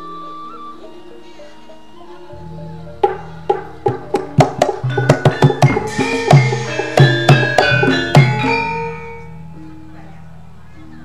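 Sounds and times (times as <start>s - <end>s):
ringing metallophone notes: 0.0s - 11.0s
drum strokes: 2.9s - 9.3s
struck percussion hits: 3.0s - 9.4s.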